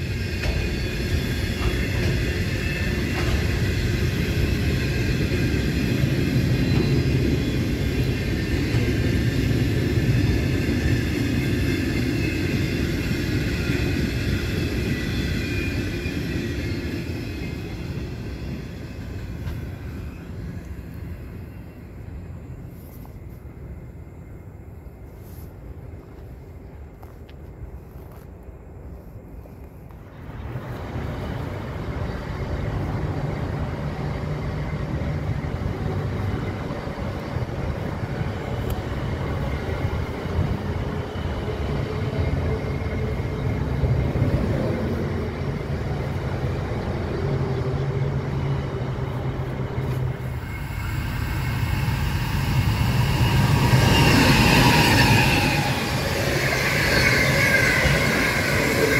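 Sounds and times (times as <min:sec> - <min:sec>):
trains rumbling past: 0:00.0 - 0:29.1, 0:29.9 - 0:58.9
wheels squealing: 0:38.5 - 0:58.9.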